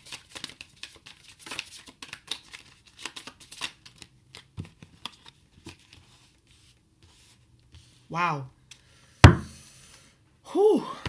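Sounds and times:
cards being shuffled: 0.0s - 6.3s.

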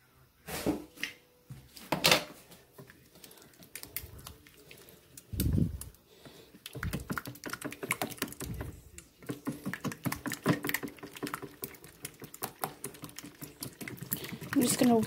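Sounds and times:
whisk ticking against metal bowl: 6.7s - 15.0s.

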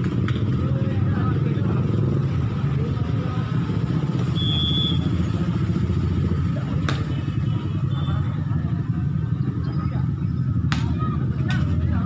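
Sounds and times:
short high whistle blast: 4.4s - 5.1s.

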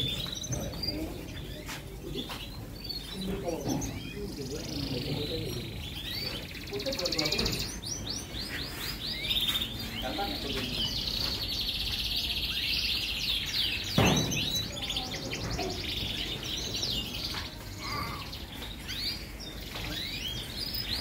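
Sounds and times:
canaries singing: 0.0s - 21.0s
sharp knock: 14.0s - 14.6s.

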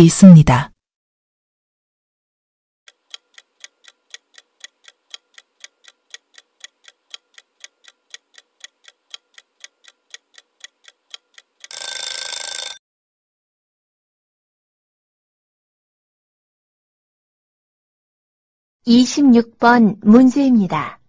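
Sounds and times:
clock ticking: 2.9s - 12.8s
alarm bell ringing: 11.7s - 12.8s.

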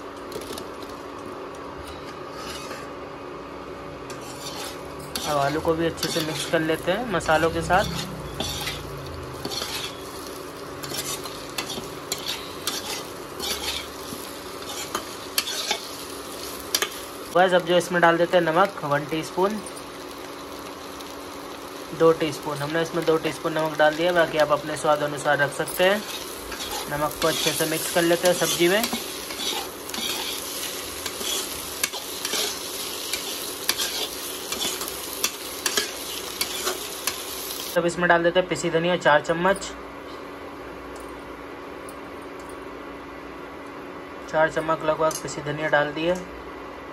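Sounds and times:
spatula scraping a pan: 2.1s - 2.9s, 4.1s - 6.6s, 7.8s - 10.2s, 10.8s - 15.9s, 25.8s - 37.2s
potatoes sizzling in a pan: 4.2s - 37.8s.

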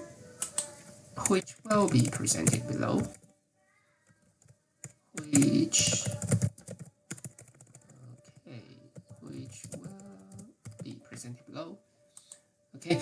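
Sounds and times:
keyboard typing: 0.4s - 3.3s, 4.1s - 11.0s.

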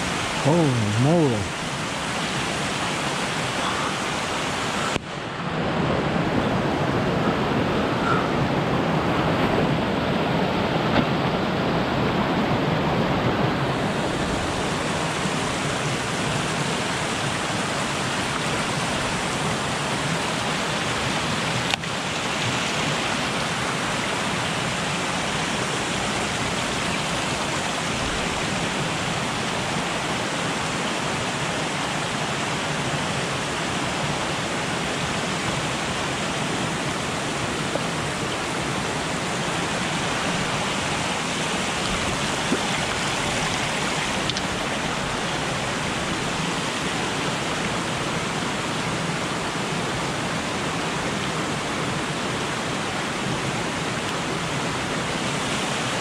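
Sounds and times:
creek water rushing: 0.0s - 56.0s.

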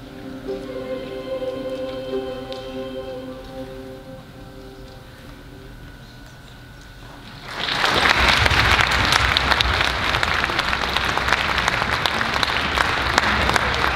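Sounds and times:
orchestra lingering tone: 0.0s - 6.2s
audience applause: 7.3s - 13.9s.

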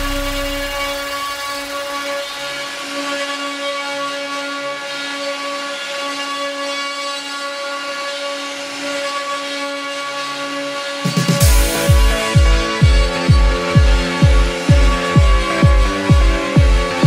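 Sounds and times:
spindle motors whining: 0.0s - 3.1s
router bits cutting wood: 0.0s - 17.0s.

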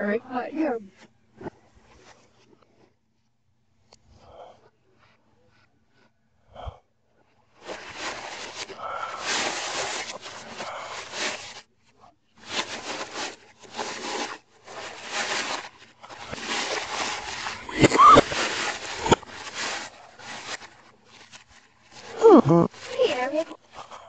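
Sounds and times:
wrapping paper crinkling: 7.6s - 11.7s, 12.4s - 24.0s.

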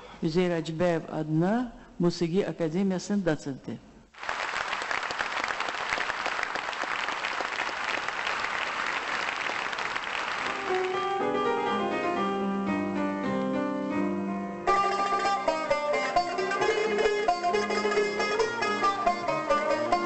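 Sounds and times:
audience applauding: 4.2s - 11.2s
piano sustained chords: 10.5s - 16.9s.

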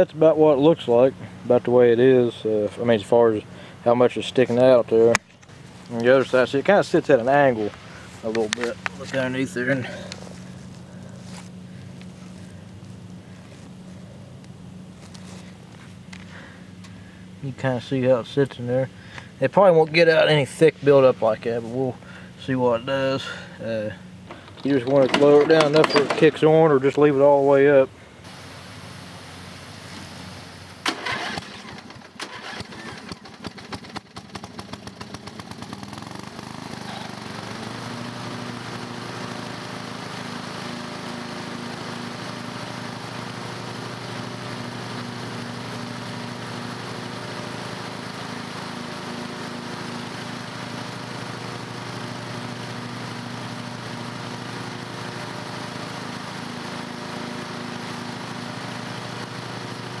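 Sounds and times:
lawn mower engine running: 0.0s - 60.0s
rapid irregular clatter: 24.3s - 26.4s.

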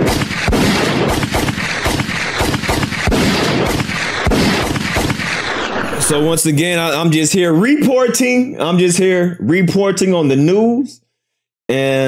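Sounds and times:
heavy bangs: 0.0s - 7.4s.

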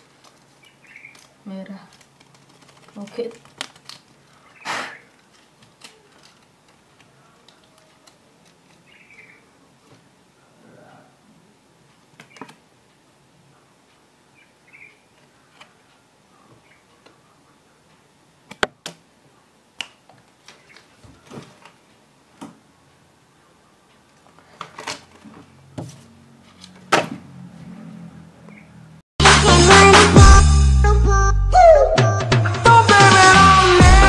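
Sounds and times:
paper packs clicking and rustling: 0.0s - 8.9s, 20.2s - 21.8s, 24.2s - 25.6s.

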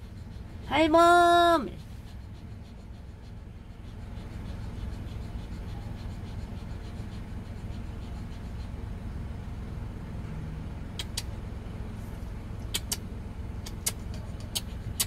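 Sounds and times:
quick rhythmic rasping: 0.0s - 9.2s, 12.6s - 15.0s.

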